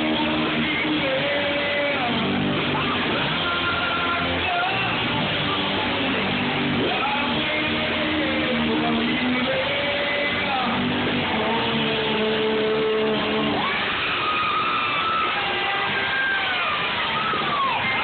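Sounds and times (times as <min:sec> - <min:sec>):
live rock band playing: 0:00.0 - 0:14.0
electric guitar: 0:00.0 - 0:18.0.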